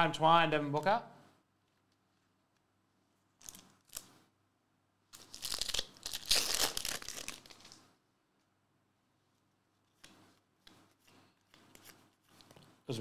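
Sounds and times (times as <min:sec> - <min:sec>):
plastic wrapper crinkling and tearing: 0:03.3 - 0:04.2, 0:05.1 - 0:07.9.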